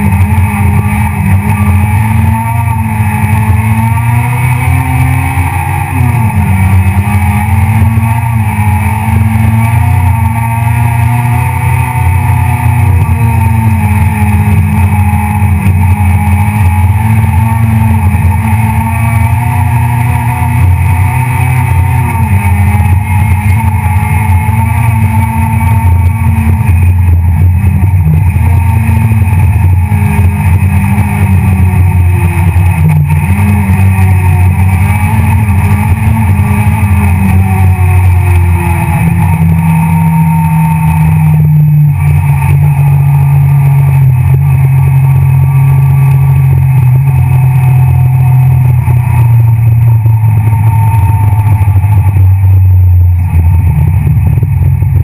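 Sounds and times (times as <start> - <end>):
rally car engine from inside cabin: 0.0 - 55.0.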